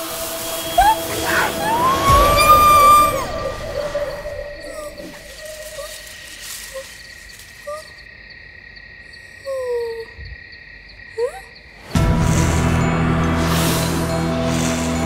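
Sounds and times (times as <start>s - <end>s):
low musical drone: 0.0s - 5.4s, 11.9s - 15.0s
insects droning: 0.0s - 15.0s
sliding animal calls: 0.1s - 8.1s
cricket-like ticking: 4.5s - 15.0s.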